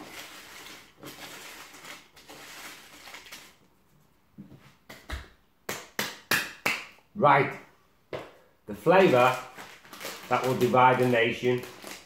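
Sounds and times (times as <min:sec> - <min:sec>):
crisps rustling in a bowl: 0:00.0 - 0:03.6, 0:08.9 - 0:12.0.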